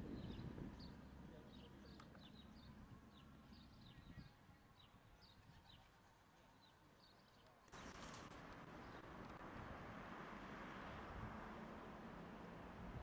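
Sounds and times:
faint birds chirping: 0:00.0 - 0:09.8.

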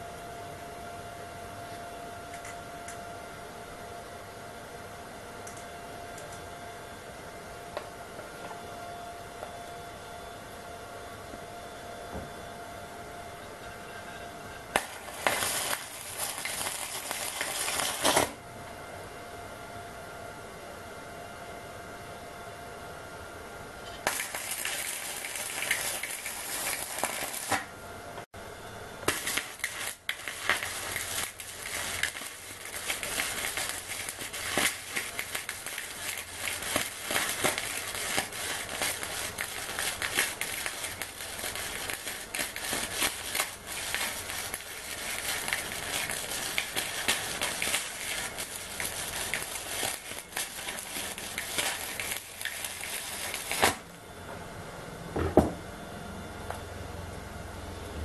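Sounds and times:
welding arc crackling: 0:14.7 - 0:18.4, 0:24.0 - 0:27.8, 0:29.0 - 0:54.0.

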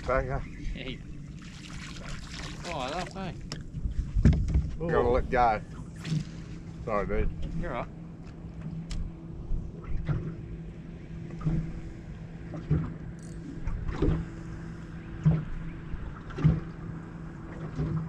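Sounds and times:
steady low hum: 0:00.0 - 0:18.0
waves slapping boat hull: 0:01.4 - 0:03.6, 0:15.2 - 0:18.0.

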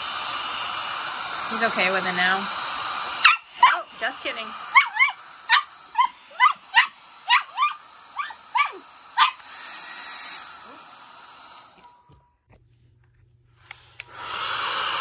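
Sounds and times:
blow dryer hiss: 0:00.0 - 0:12.1, 0:13.6 - 0:15.0
puppy barking high-pitched yips: 0:03.2 - 0:03.9, 0:04.7 - 0:09.5.

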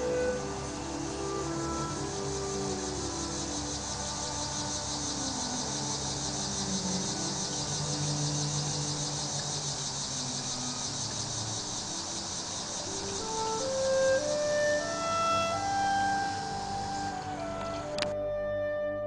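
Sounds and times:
low held tones: 0:00.0 - 0:11.4
crickets chirping: 0:00.0 - 0:18.2.

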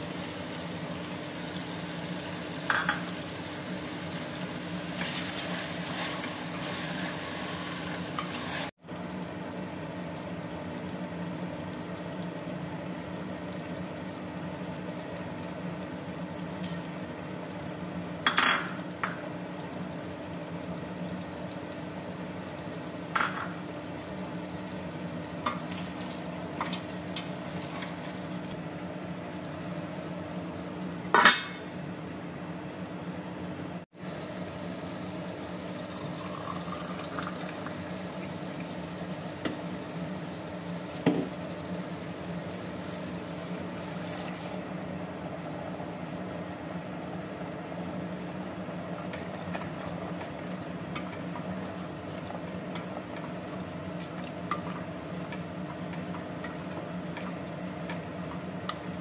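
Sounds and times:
food sizzling in a pot: 0:00.0 - 0:08.8, 0:33.9 - 0:44.8.

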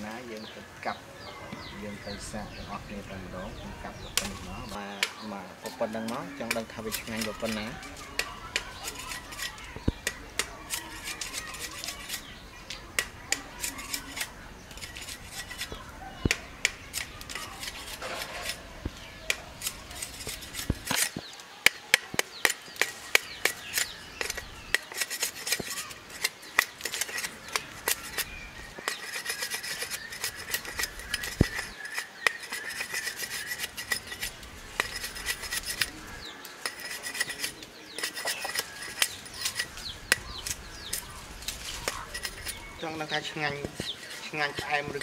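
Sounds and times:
knife scraping sugarcane rind: 0:04.0 - 0:45.0.

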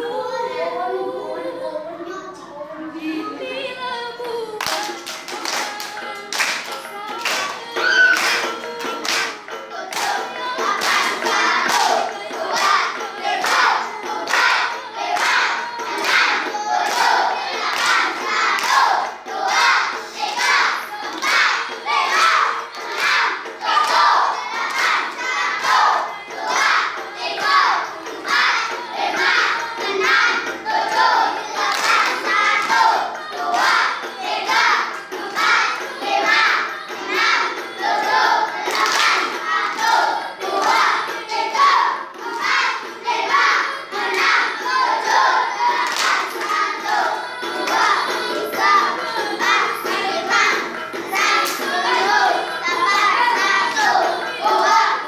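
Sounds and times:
children singing in unison: 0:00.0 - 0:55.0
hand claps and body slaps: 0:04.6 - 0:10.2, 0:10.8 - 0:12.0, 0:14.3 - 0:14.6, 0:15.2 - 0:18.9, 0:31.6 - 0:32.8, 0:38.7 - 0:40.0, 0:45.8 - 0:47.0, 0:51.2 - 0:51.7.

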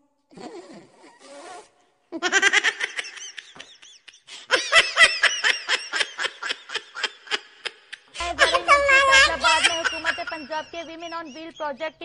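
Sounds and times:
person laughing hard: 0:02.2 - 0:11.6.

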